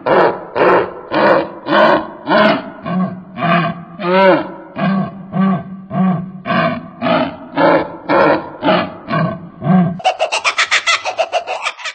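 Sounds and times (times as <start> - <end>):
kookaburra calling: 10.0 - 11.9.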